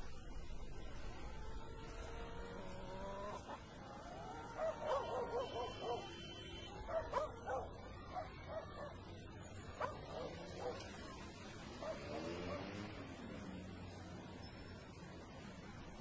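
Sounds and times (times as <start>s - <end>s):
dog yelping: 4.6s - 6.2s, 6.9s - 9.0s.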